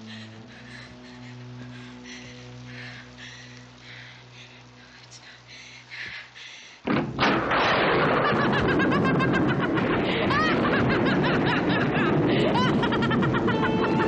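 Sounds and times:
storm rain: 0.0 - 14.0
wind: 0.0 - 14.0
loud crash: 6.9 - 12.5
wild laughter and cries: 8.0 - 14.0.

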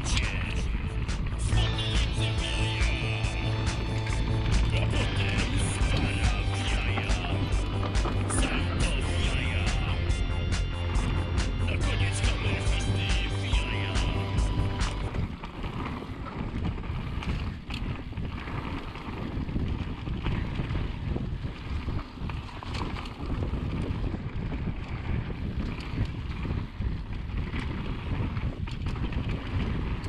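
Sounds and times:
tyres rumbling on dirt: 0.0 - 15.2
wind buffeting microphone: 0.0 - 30.0
bike clicks and rattles: 21.6 - 24.1.

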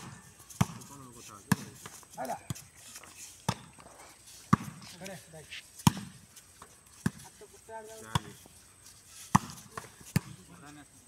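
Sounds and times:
volleyball hand slaps: 9.3 - 10.4.

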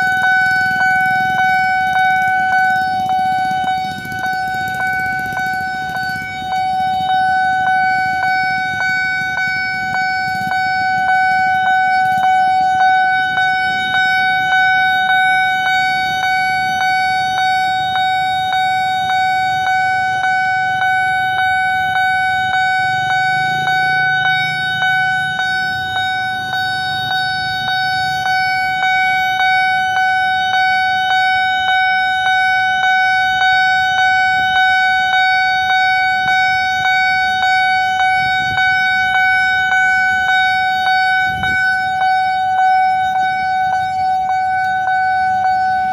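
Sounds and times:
level crossing bell ringing: 0.0 - 45.9
low motorcycle engines: 0.0 - 45.9.

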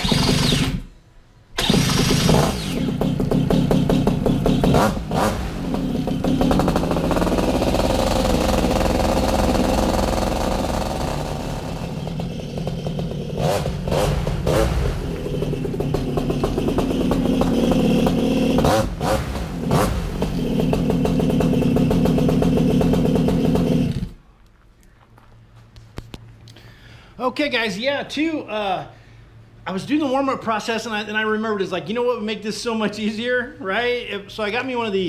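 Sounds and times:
paramotor engine and propeller running: 1.6 - 24.2.

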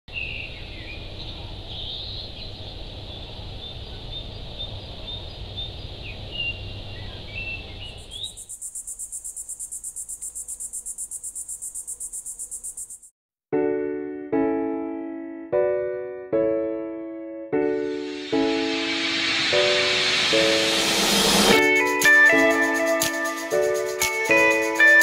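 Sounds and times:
birds chirping: 0.1 - 13.1
pulsing insect chirring: 7.9 - 13.1.

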